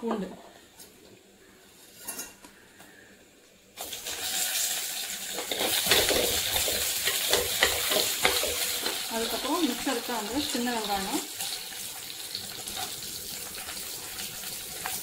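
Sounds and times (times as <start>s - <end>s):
hot oil sizzling and crackling: 3.8s - 15.0s.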